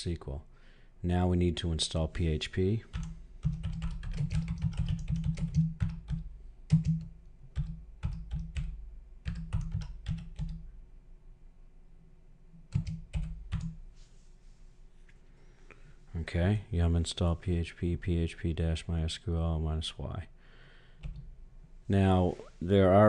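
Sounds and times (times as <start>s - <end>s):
keyboard typing: 2.9s - 10.6s, 12.6s - 13.8s, 21.0s - 21.3s.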